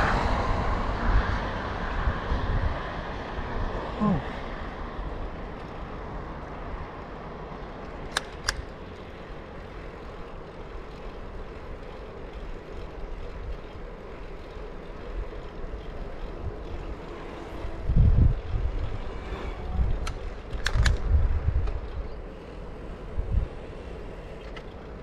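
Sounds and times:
wind on microphone: 0:00.0 - 0:03.8, 0:17.6 - 0:22.1
bicycle rolling on asphalt: 0:00.0 - 0:25.0
sharp clicks: 0:07.8 - 0:08.9, 0:20.0 - 0:22.0.

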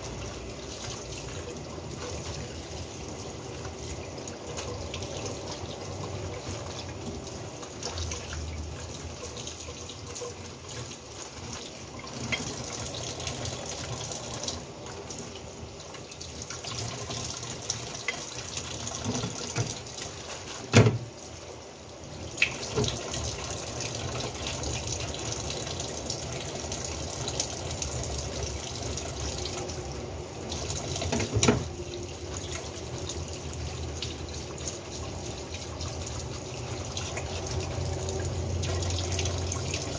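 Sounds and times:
tap water running into sink: 0:00.0 - 0:39.9.

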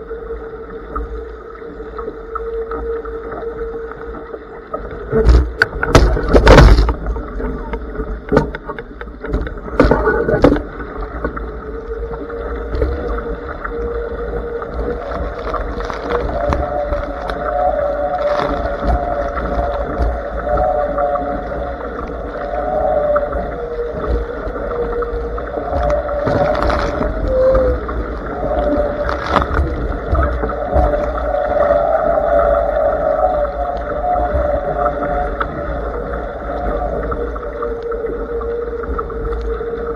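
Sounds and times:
water rushing along hull: 0:00.0 - 0:39.9
wavering hum: 0:00.0 - 0:39.9.

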